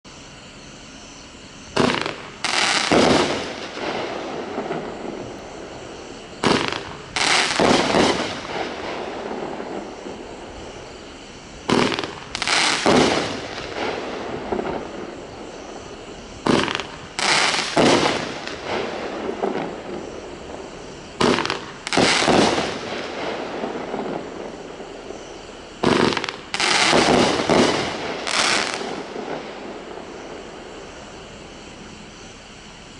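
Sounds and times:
firework crackling: 1.7 - 32.0
fireworks bursting overhead: 1.7 - 32.0
firework shots thumping: 1.8 - 10.2, 11.7 - 20.1, 21.2 - 24.5, 25.8 - 30.0.

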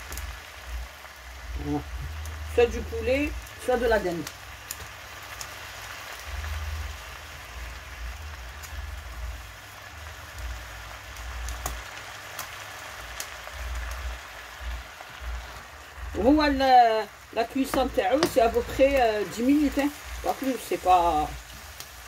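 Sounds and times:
spinach sizzling in oil: 0.0 - 22.0.

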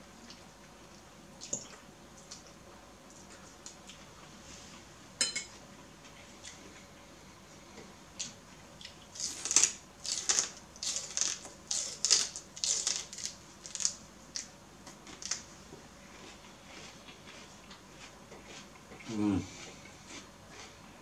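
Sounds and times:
celery crunching: 8.2 - 15.5.

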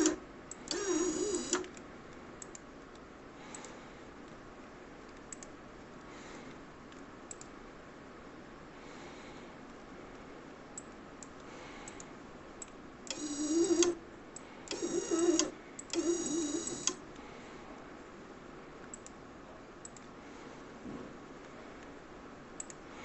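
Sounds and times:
small conveyor motor whining: 0.0 - 1.7, 13.1 - 14.0, 14.7 - 17.0.

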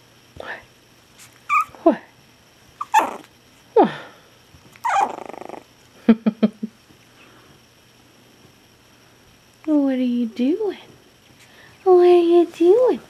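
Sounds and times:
puppy yipping: 1.4 - 1.8, 2.8 - 3.3, 4.8 - 5.6.

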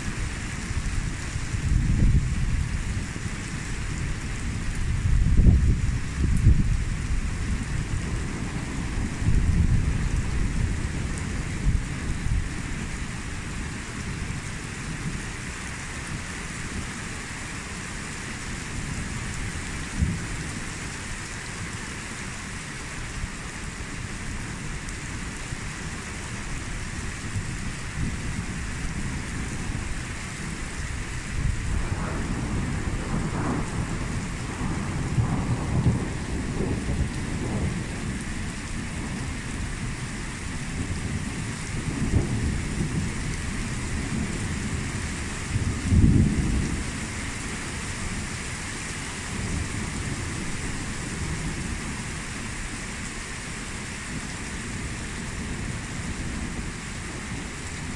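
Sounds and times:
thunder rumbling: 0.0 - 14.4, 27.4 - 47.1
heavy rain on pavement: 0.0 - 57.9.

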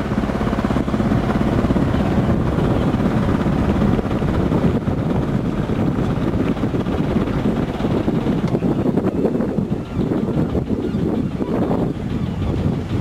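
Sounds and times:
boat engine throbbing: 0.0 - 13.0
wind buffeting microphone: 0.0 - 13.0.

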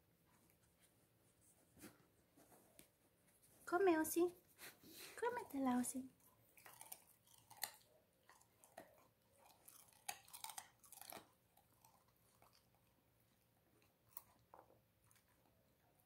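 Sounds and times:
dog chewing raw carrot: 6.2 - 15.7.

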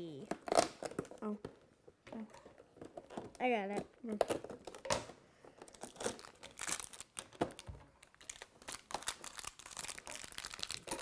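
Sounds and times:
plastic bag crinkling and tearing: 5.7 - 11.0.

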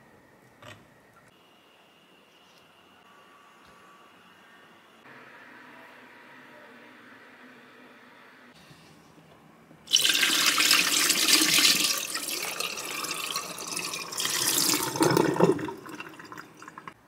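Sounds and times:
water pouring into a steel sink: 9.9 - 17.0.

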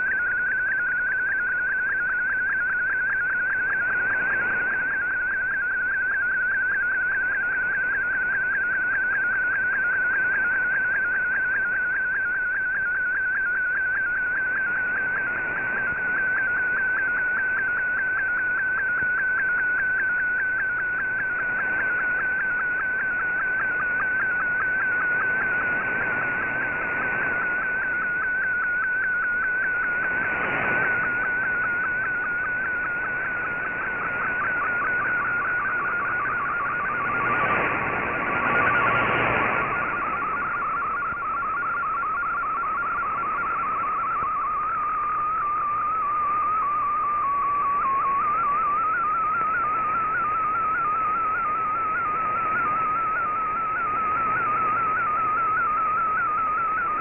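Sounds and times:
wavering whistle-like data tone: 0.0 - 57.0
radio hiss: 3.5 - 5.2, 20.7 - 57.0.

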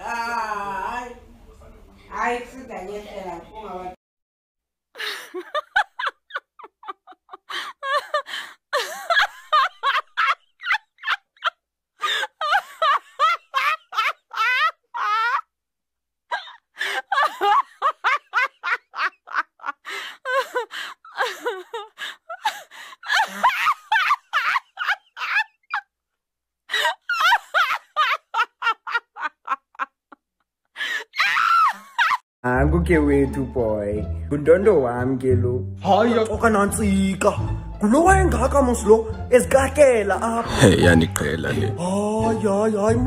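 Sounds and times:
high-pitched laughter: 5.0 - 15.5, 31.0 - 32.2.

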